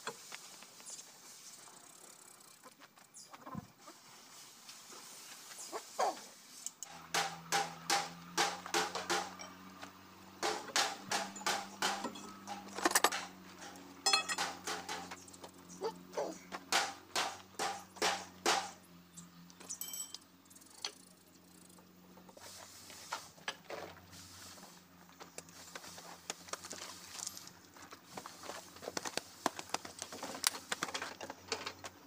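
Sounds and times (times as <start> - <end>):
metal tools clanking: 8.9 - 9.8, 10.4 - 15.2, 19.6 - 21.0.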